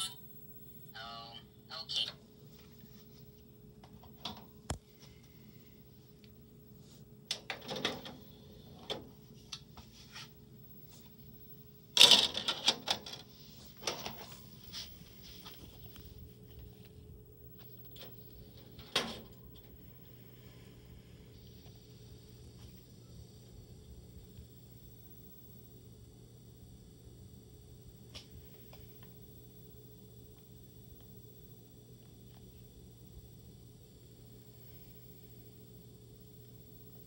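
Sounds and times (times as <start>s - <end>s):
faint steady hum: 0.0s - 37.0s
disc tray clicks and clunks: 3.8s - 4.9s, 7.2s - 9.8s, 11.9s - 14.4s, 17.5s - 19.8s.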